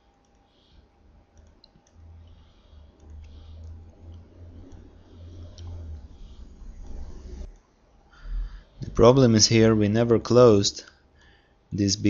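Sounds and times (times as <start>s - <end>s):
computer mouse clicks: 0.0s - 7.7s
keystrokes: 0.1s - 0.5s, 1.3s - 7.6s
low rumble: 1.9s - 10.3s.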